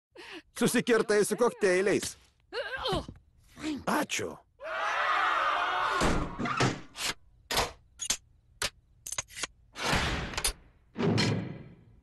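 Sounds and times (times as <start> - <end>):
cartoon voices screaming: 4.6 - 6.4.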